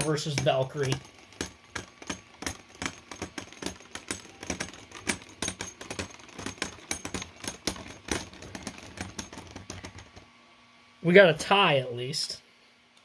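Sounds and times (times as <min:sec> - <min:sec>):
spinning tops clacking: 0:00.0 - 0:10.3.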